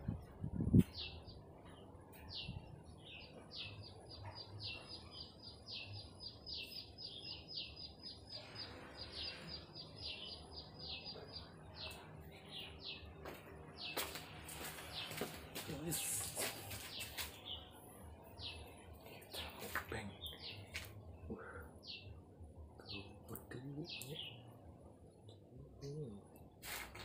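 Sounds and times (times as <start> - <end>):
small bird chirping: 0.7 - 13.1.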